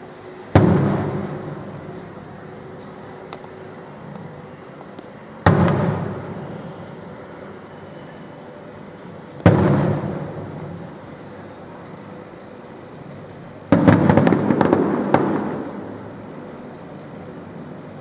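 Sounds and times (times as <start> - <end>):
firework shells bursting: 5.4 - 6.5, 13.7 - 16.0.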